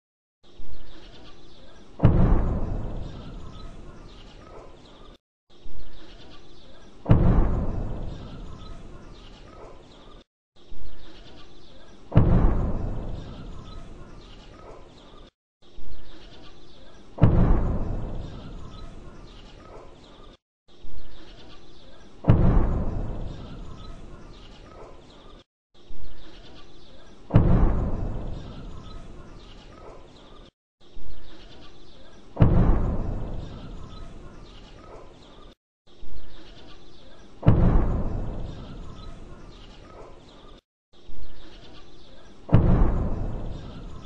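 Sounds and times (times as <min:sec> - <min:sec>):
heavy rumbling boom: 0:02.0 - 0:03.3, 0:07.1 - 0:08.6, 0:12.1 - 0:13.6, 0:17.2 - 0:18.4, 0:22.3 - 0:23.7, 0:27.3 - 0:28.5, 0:32.4 - 0:33.8, 0:37.4 - 0:38.6, 0:42.5 - 0:44.0
distant explosion thud: 0:02.0 - 0:03.6, 0:07.1 - 0:08.8, 0:12.1 - 0:13.7, 0:17.2 - 0:18.8, 0:22.2 - 0:23.8, 0:27.3 - 0:28.6, 0:32.4 - 0:34.1, 0:37.4 - 0:38.8, 0:42.5 - 0:44.0.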